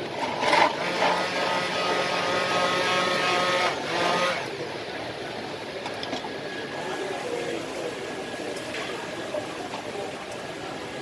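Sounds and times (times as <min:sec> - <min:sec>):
stick blender motor whine: 0:00.2 - 0:04.5.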